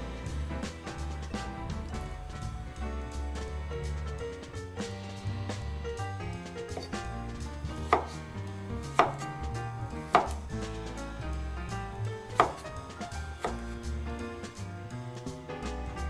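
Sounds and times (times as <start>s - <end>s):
knife knocking on cutting board: 6.7s - 7.1s, 7.7s - 8.2s, 8.9s - 10.5s, 12.4s - 12.7s.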